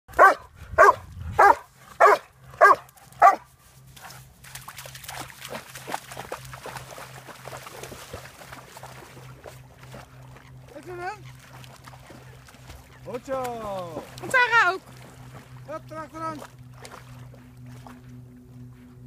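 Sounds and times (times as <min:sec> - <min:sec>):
dog barking: 0:00.1 - 0:03.5
dogs splashing through water: 0:00.1 - 0:18.9.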